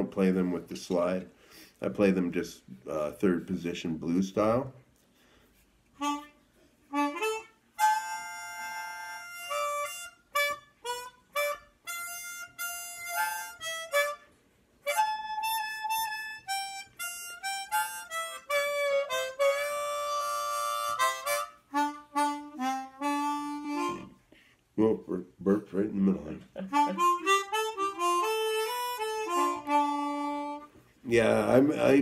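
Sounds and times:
blues harmonica playing: 6.0s - 24.5s, 26.1s - 32.0s.

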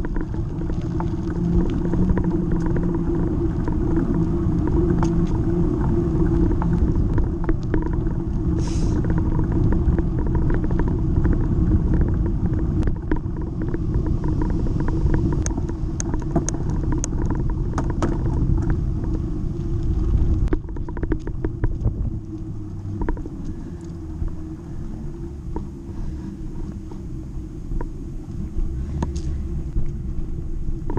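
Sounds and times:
bicycle clicks and rattles: 0.0s - 24.4s
tyres rumbling on asphalt: 0.0s - 30.9s
wind on camera: 0.0s - 30.9s.

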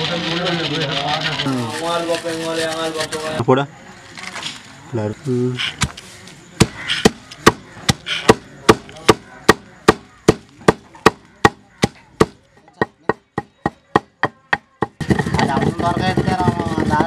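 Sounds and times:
pestle pounding in stone mortar: 6.6s - 17.0s.

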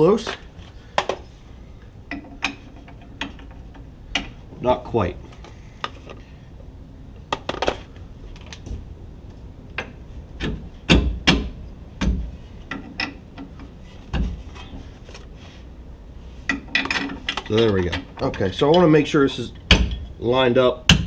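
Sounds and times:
metal clinks and knocks: 8.4s - 9.0s.

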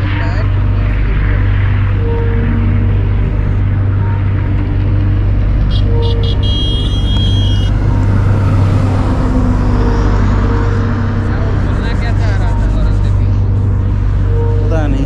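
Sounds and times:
high-pitched tone: 0.0s - 15.0s
motorcycle engine drone: 0.0s - 15.0s.

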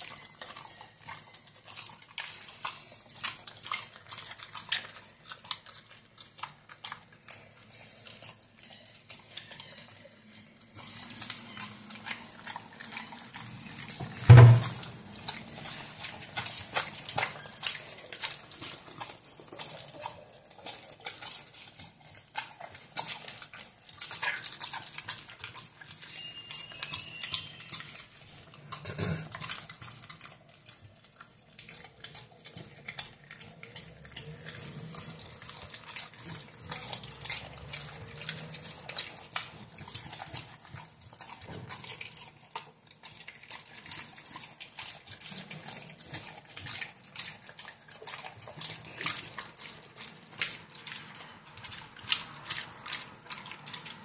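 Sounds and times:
dog chewing meat: 0.0s - 54.0s
brief high squeak: 26.1s - 27.8s.

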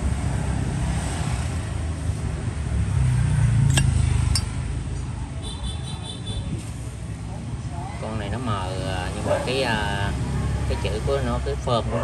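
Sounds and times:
road traffic rumble: 0.0s - 12.0s
sharp metallic clinks: 3.6s - 4.6s.

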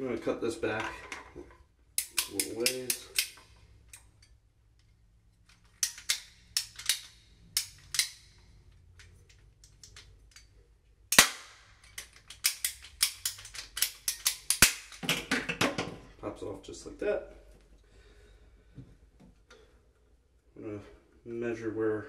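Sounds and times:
ratcheting pipe cutter clicks: 2.0s - 4.4s, 5.5s - 10.5s, 11.8s - 15.0s
plastic pipe cracking: 11.1s - 16.0s.

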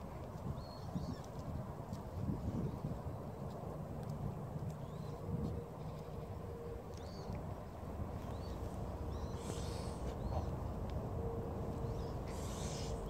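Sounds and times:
steady low rumble: 0.0s - 13.0s
goose hissing: 9.2s - 10.5s, 12.2s - 13.0s.

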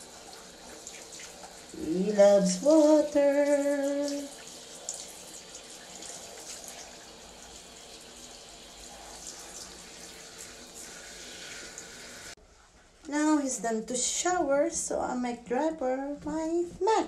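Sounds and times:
shower head spraying water: 0.0s - 12.4s.

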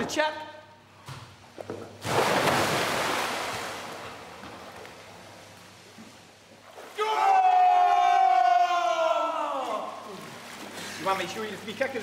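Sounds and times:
person splashing into pool: 2.0s - 4.0s
man shouting: 7.0s - 10.1s.

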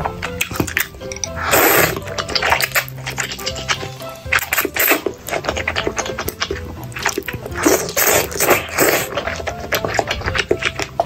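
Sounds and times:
wet mouth clicks and smacks: 0.2s - 11.0s
person slurping noodles: 0.4s - 11.0s.

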